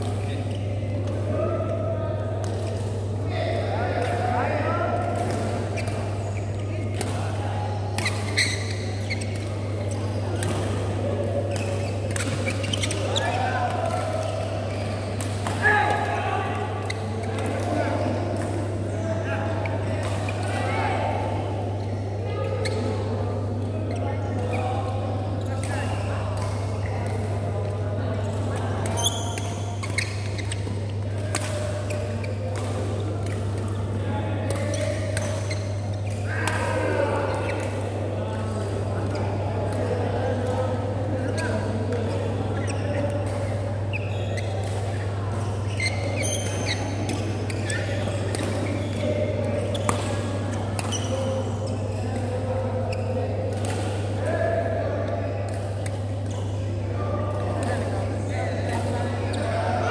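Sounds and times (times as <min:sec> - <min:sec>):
low hum of large hall: 0:00.0 - 0:59.9
shoes squeaking on court: 0:05.3 - 0:15.3, 0:23.8 - 0:24.7, 0:28.2 - 0:33.9, 0:34.5 - 0:36.2, 0:41.1 - 0:53.6
racket hitting shuttlecock: 0:28.9 - 0:33.8, 0:42.0 - 0:52.4.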